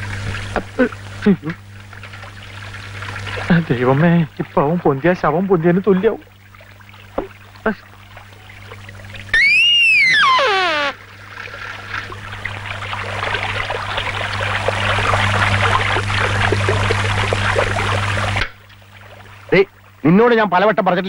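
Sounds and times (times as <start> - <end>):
whistle sliding down in pitch: 9.4 - 11.0
water rushing from channel: 9.4 - 19.7.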